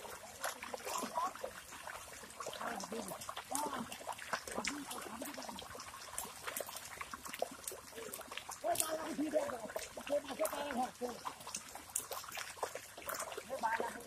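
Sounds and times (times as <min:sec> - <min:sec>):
splashing in muddy water: 0:00.0 - 0:14.0.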